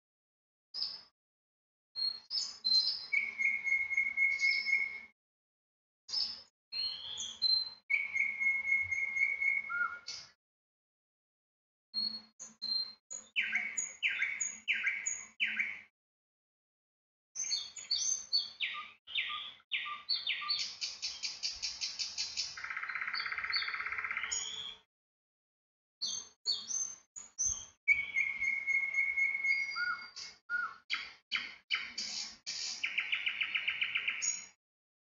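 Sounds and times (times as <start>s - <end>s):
small birds chirping and trilling: 0.8s - 1.1s, 2.0s - 5.1s, 6.1s - 10.4s, 12.0s - 15.9s, 17.4s - 24.9s, 26.0s - 34.6s.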